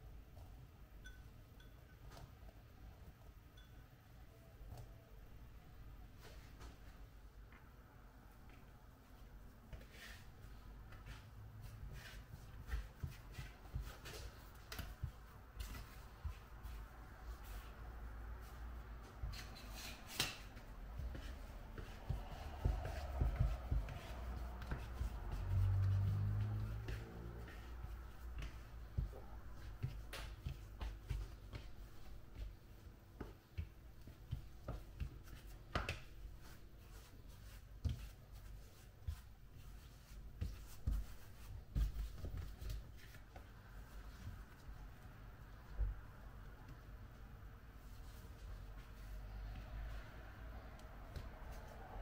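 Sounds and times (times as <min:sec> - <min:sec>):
soft knocks and rubbing: 0:18.4 - 0:44.7
light taps and knocks: 0:22.0 - 0:27.6.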